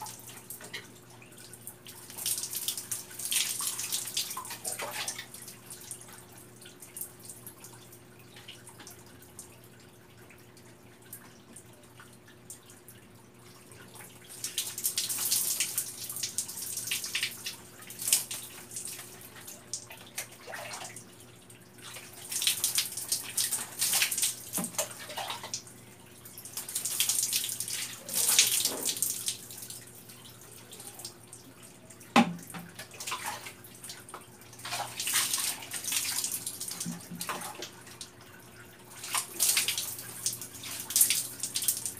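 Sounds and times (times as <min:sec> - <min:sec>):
water pouring and splashing: 0:00.0 - 0:06.3, 0:13.8 - 0:31.2, 0:32.1 - 0:41.9
water dripping: 0:00.0 - 0:41.9.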